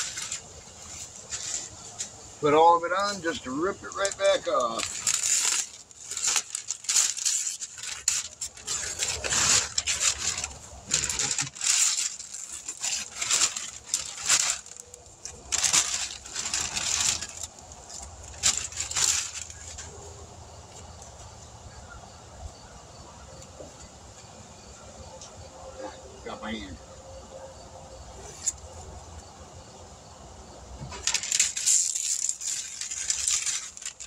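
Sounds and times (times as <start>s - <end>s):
paper rustling and crumpling: 0.0s - 21.2s, 30.8s - 34.0s.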